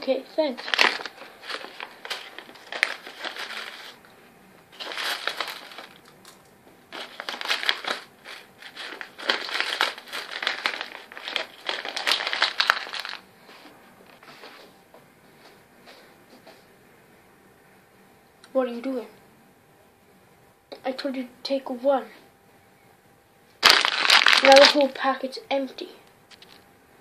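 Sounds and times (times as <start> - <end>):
plastic sweet packet crinkling: 0.4 - 4.0, 4.7 - 13.2, 23.6 - 25.0
sweets tipped out: 23.6 - 24.9.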